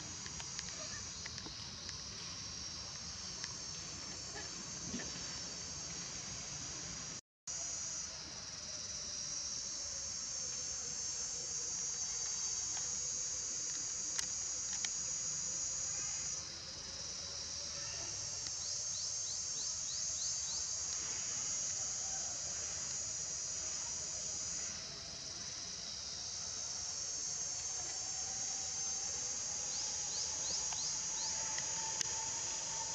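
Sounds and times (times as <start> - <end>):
insects droning: 0.0 - 32.9
sharp clicks: 13.6 - 15.0.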